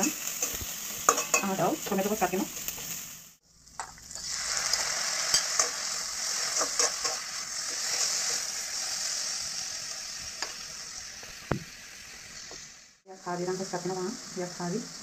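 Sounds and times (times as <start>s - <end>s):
metal spoon stirring and scraping: 0.0s - 3.0s, 4.1s - 8.9s
vegetables sizzling in hot oil: 0.0s - 15.0s.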